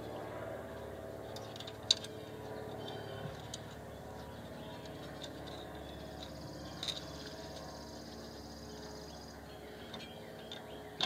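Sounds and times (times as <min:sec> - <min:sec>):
low hum: 0:00.0 - 0:11.0
small metallic clicks: 0:04.8 - 0:07.7.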